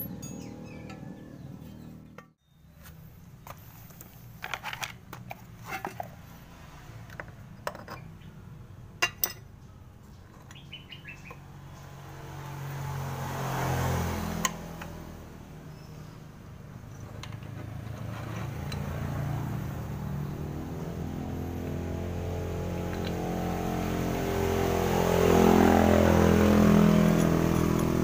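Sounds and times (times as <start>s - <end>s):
metal clinks: 0.0s - 1.2s.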